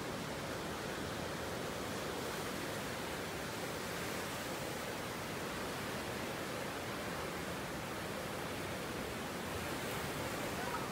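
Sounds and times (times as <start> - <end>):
ocean surf breaking: 9.5 - 10.9.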